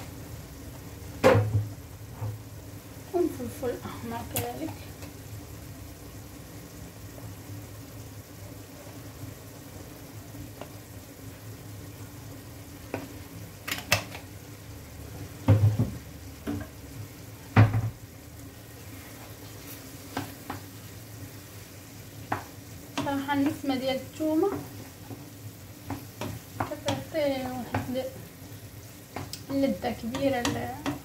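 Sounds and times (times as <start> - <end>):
vegetables sizzling in a frying pan: 0.0 - 31.0
wooden spoon knocking a pan: 1.2 - 2.4, 15.4 - 16.8, 17.5 - 18.0, 20.1 - 20.7, 22.2 - 23.8, 24.5 - 28.1, 29.1 - 31.0.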